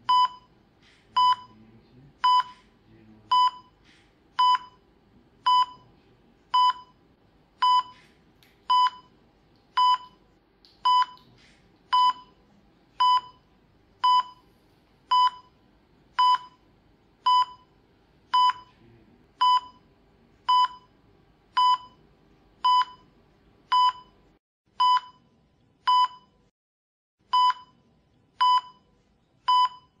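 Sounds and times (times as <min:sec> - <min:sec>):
patient monitor beeping: 0:00.0 - 0:01.6, 0:02.2 - 0:03.8, 0:04.4 - 0:07.0, 0:07.6 - 0:09.2, 0:09.8 - 0:10.2, 0:10.8 - 0:11.2, 0:11.9 - 0:12.4, 0:13.0 - 0:14.5, 0:15.1 - 0:15.6, 0:16.2 - 0:18.8, 0:19.4 - 0:25.3, 0:27.3 - 0:27.8, 0:28.4 - 0:30.0
faint low room hum: 0:00.0 - 0:26.5.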